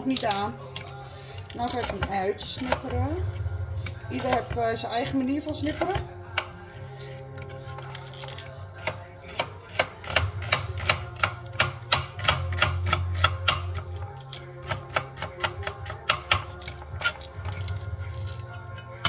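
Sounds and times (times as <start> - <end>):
knife chopping on cutting board: 1.7 - 3.0, 8.8 - 13.9, 14.6 - 17.1.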